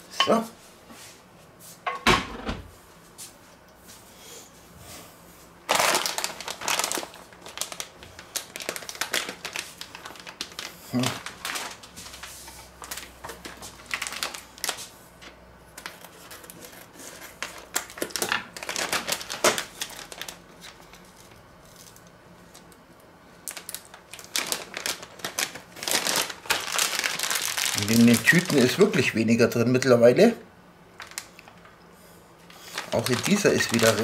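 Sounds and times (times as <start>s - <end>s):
plastic bag crinkling: 5.6s - 14.9s, 15.8s - 22.7s, 23.4s - 30.0s, 31.0s - 31.7s, 32.5s - 34.0s.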